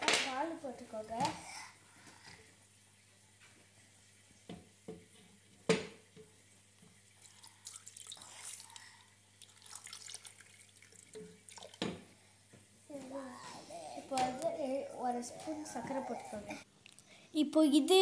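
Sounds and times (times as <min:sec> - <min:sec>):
milk pouring into blender jar: 0:07.2 - 0:11.9.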